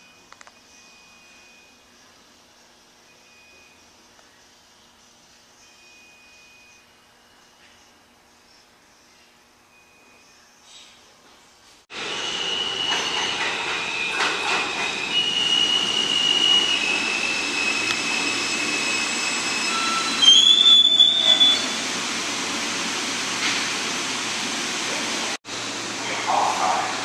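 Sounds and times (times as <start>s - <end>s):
subway train rumbling: 11.9s - 27.0s
train wheels squealing: 12.0s - 21.8s.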